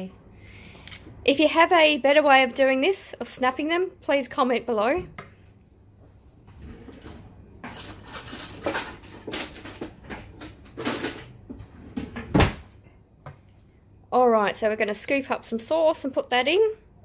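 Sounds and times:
kitchen utensils scraping and clattering: 0:06.6 - 0:11.4.

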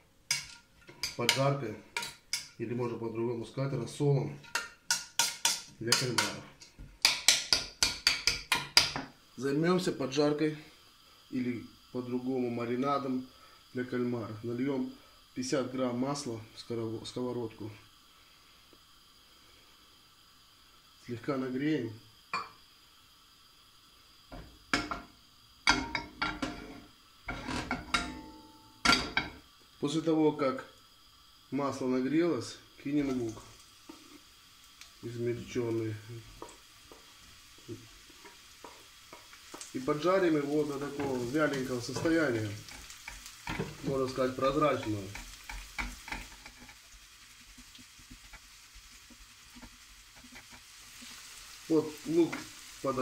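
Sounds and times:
onions sizzling in oil: 0:00.0 - 0:53.0
spatula scraping a pan: 0:00.3 - 0:02.6, 0:25.7 - 0:29.4, 0:38.1 - 0:51.3
frying pan knocking on metal grate: 0:07.0 - 0:09.1.

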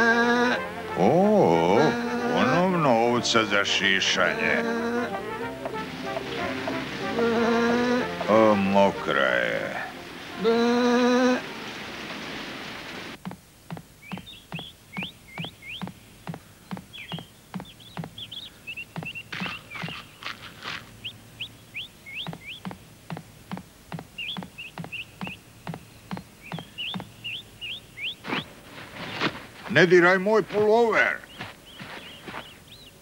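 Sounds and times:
wavering bleat: 0:00.0 - 0:03.0, 0:04.1 - 0:05.4, 0:06.4 - 0:08.6, 0:09.6 - 0:11.5
birds chirping: 0:00.0 - 0:33.0
rain hiss: 0:00.6 - 0:31.3.

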